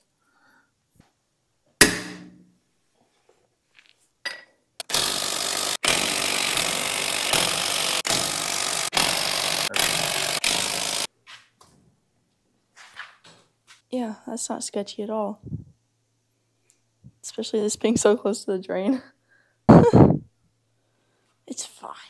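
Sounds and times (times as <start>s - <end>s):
impact wrench hammering: 1.8s - 2.5s, 4.3s - 11.1s.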